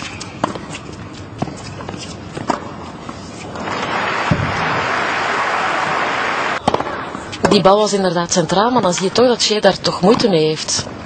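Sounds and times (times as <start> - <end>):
crowd applause: 3.6 - 6.6
tennis ball struck by racket: 6.6 - 7.6.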